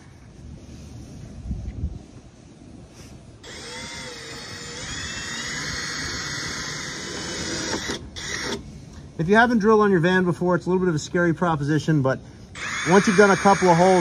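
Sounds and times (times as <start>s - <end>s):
cordless drill drilling metal: 3.4s - 8.7s, 12.5s - 14.0s.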